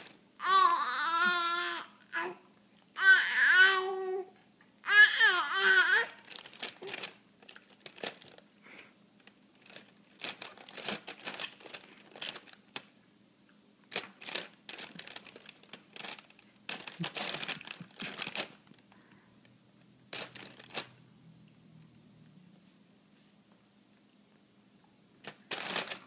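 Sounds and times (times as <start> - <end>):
plastic bag crinkling: 5.9 - 8.6, 9.2 - 12.9, 13.9 - 18.9, 20.1 - 21.0, 25.2 - 26.0.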